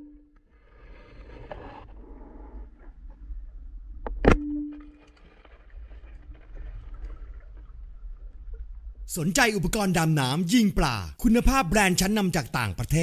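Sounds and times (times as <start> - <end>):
short ringing tone: 0.0 - 0.3.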